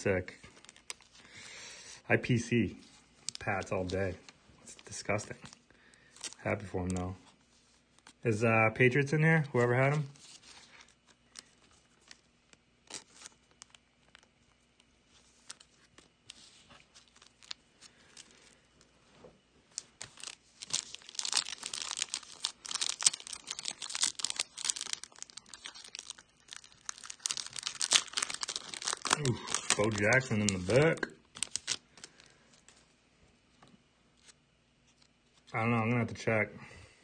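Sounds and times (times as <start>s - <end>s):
foil wrapper tearing and crinkling: 3.2s - 7.1s, 9.6s - 18.6s, 19.7s - 32.4s.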